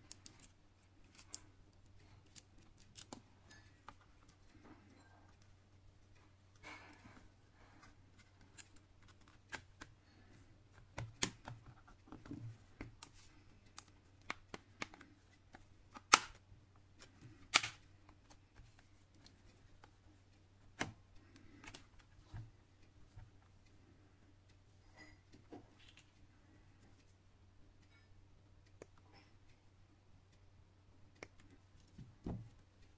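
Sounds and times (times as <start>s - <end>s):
low steady hum: 0.0s - 32.9s
sharp plastic snaps: 10.7s - 19.9s
plastic clips clicking: 13.7s - 16.4s.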